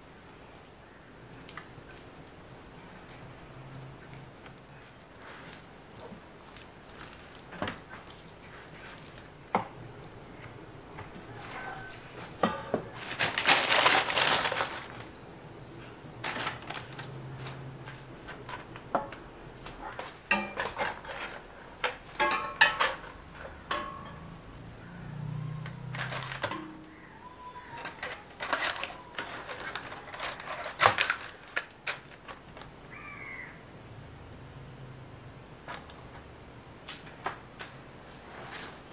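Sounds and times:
rustling: 0:01.4 - 0:24.4, 0:25.4 - 0:32.8, 0:36.9 - 0:38.9
dishes and utensils clinking: 0:11.3 - 0:13.0, 0:20.0 - 0:24.7, 0:25.8 - 0:27.0.

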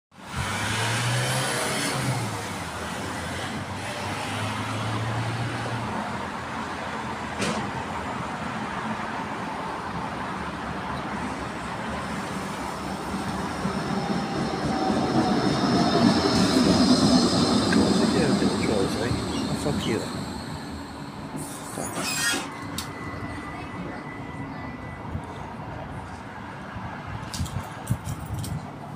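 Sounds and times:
road traffic: 0:00.2 - 0:28.9
tram rolling past: 0:00.2 - 0:28.9
tram whine falling in pitch: 0:12.3 - 0:25.3.

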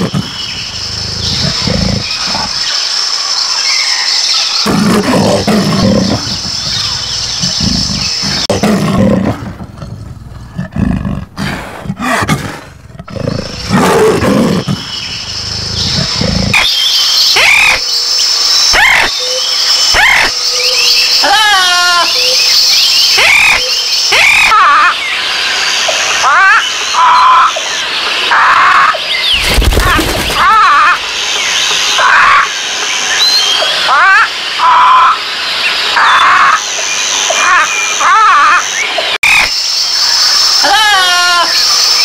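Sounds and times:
leopard growling and roaring: 0:00.0 - 0:02.7, 0:04.6 - 0:16.6
steady high background noise: 0:13.2 - 0:42.0.

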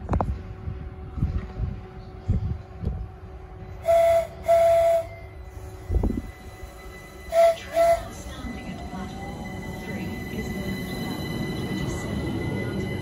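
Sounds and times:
train horn blasts: 0:03.3 - 0:08.4.

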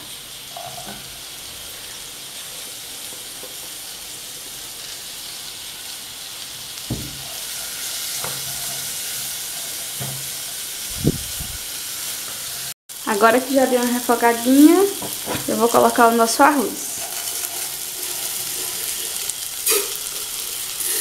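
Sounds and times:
vegetables sizzling in butter: 0:00.0 - 0:21.0.

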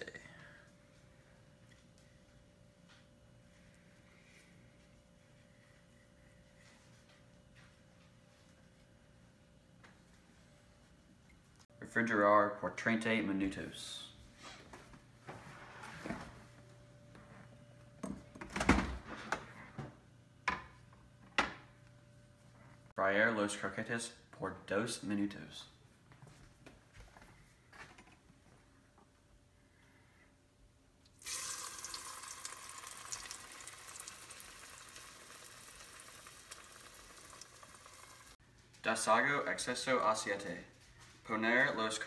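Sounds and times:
croquette sizzling in hot oil: 0:31.2 - 0:38.4.

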